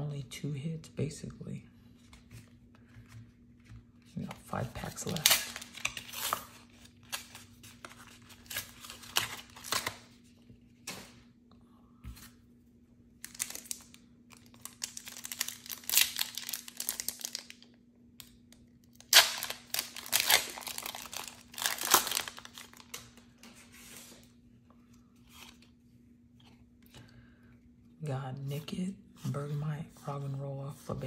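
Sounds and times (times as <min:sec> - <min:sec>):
foil wrapper crinkling and tearing: 0:04.5 - 0:10.1, 0:13.2 - 0:17.8, 0:18.8 - 0:23.4.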